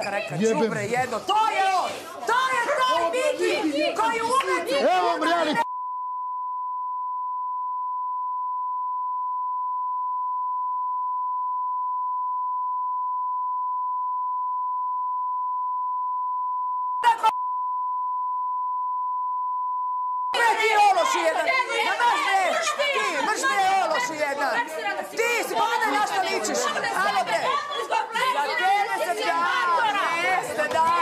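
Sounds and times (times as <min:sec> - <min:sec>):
censor bleep tone: 0:05.6 - 0:20.4.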